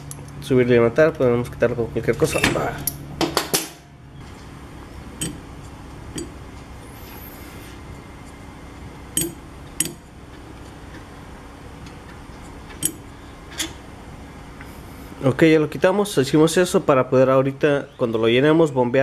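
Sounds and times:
small metallic clicks: 0:09.2 - 0:10.1.

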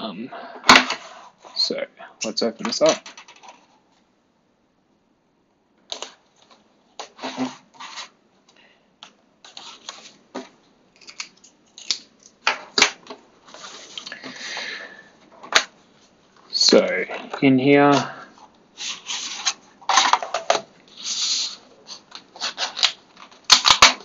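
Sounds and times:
box rustling slide: 0:07.1 - 0:08.2, 0:13.5 - 0:15.1, 0:18.8 - 0:20.2.

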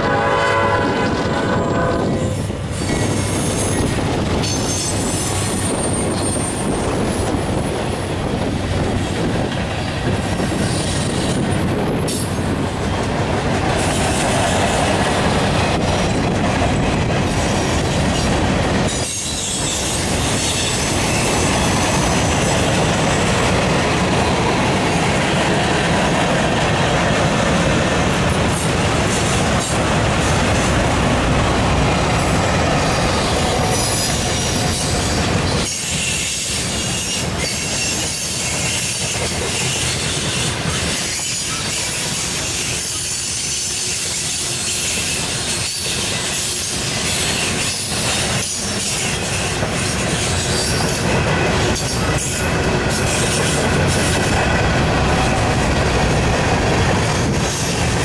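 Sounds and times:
train horn chord: 0:00.0 - 0:02.4
freight cars rumbling and clattering: 0:01.0 - 0:36.2
high wheel squeal: 0:17.3 - 0:22.2, 0:32.8 - 0:54.0.

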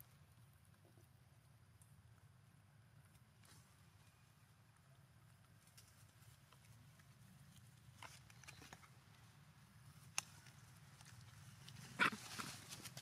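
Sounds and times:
faint low hum: 0:00.0 - 0:13.0
soft clicks and rustles: 0:04.7 - 0:13.0.

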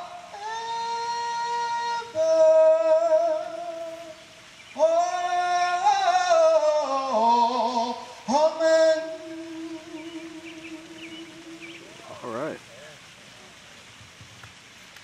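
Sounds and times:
man singing into a microphone: 0:00.0 - 0:04.2, 0:04.8 - 0:12.0.

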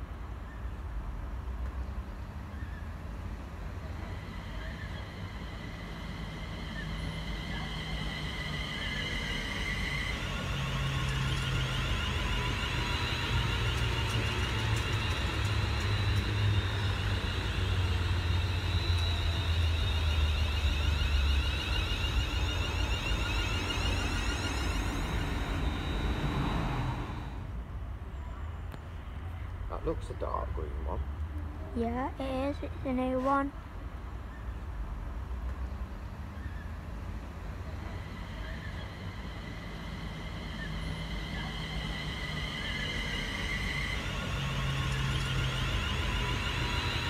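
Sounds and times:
train low drone: 0:00.0 - 0:47.0
high-pitched whining tones: 0:03.9 - 0:27.5, 0:37.4 - 0:47.0.

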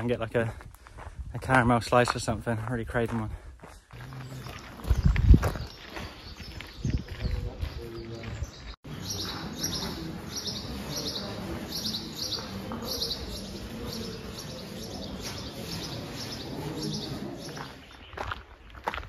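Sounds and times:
bird chirping: 0:03.9 - 0:19.0.

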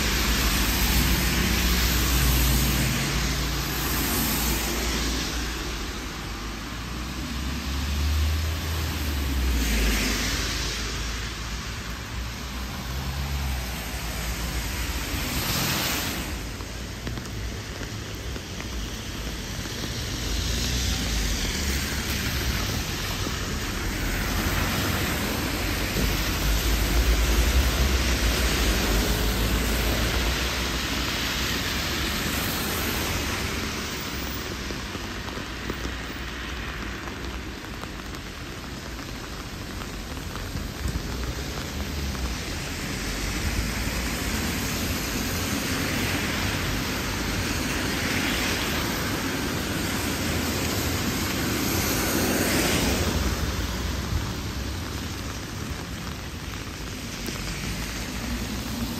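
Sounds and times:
rain falling: 0:00.0 - 0:58.9.

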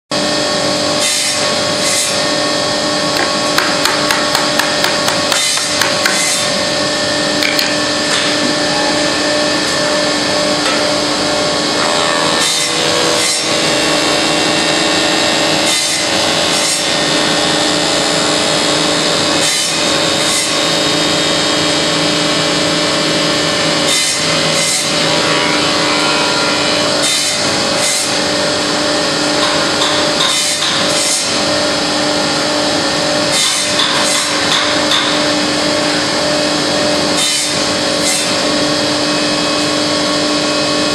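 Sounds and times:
polishing machine motor whine: 0:06.2 - 0:33.4.

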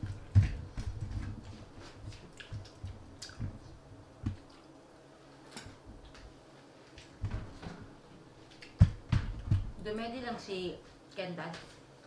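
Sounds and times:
wet squishy eating noises: 0:01.3 - 0:03.7, 0:04.3 - 0:04.9.

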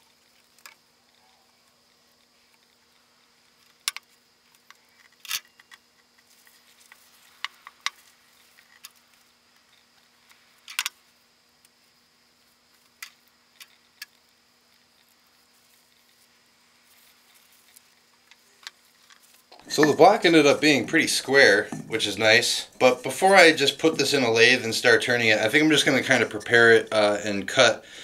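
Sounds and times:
faint steady hum: 0:00.0 - 0:28.0
wooden strips and clamps knocking: 0:21.7 - 0:21.9.

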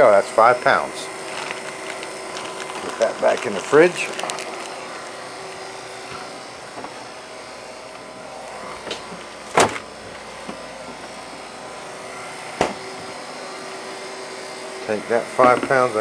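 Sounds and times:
mechanical hum: 0:00.0 - 0:16.0
refrigerator door shutting: 0:08.8 - 0:09.9.

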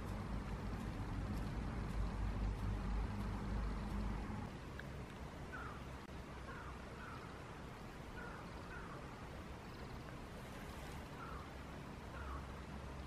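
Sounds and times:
low steady rumble: 0:00.0 - 0:13.0
distant bird calling: 0:05.5 - 0:07.5, 0:08.1 - 0:12.7.

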